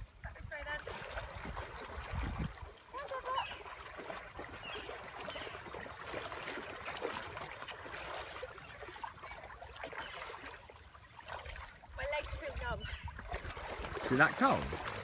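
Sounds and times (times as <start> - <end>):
river water sloshing and splashing: 0.0 - 15.0.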